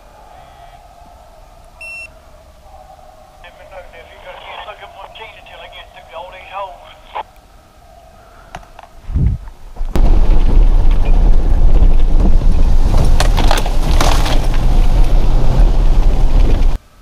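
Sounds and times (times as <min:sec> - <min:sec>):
truck rumbling and rattling: 0:09.1 - 0:16.8.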